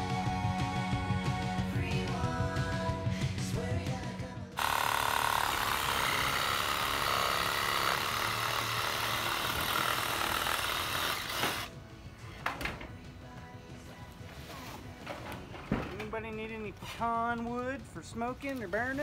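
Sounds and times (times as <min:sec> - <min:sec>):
background music: 0:00.0 - 0:19.0
reciprocating saw cutting wood: 0:04.6 - 0:11.7.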